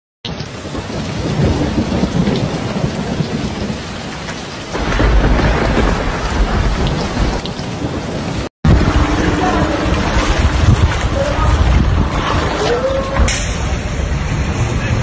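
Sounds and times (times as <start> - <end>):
heavy rain splashing on water: 0.3 - 15.0
deep low rumble: 8.7 - 15.0.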